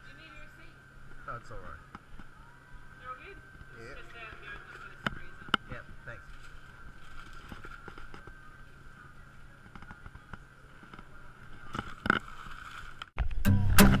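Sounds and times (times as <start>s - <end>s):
thin whine and low hum: 0.0s - 14.0s
plastic bag rustle: 6.0s - 8.8s
guitar and bass music: 13.2s - 14.0s.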